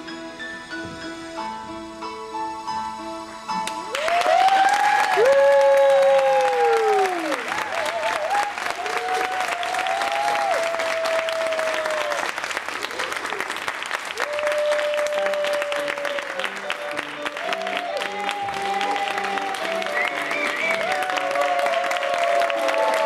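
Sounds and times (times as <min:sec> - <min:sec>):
music: 0:00.0 - 0:13.2, 0:14.1 - 0:23.0
audience applauding: 0:03.8 - 0:23.0.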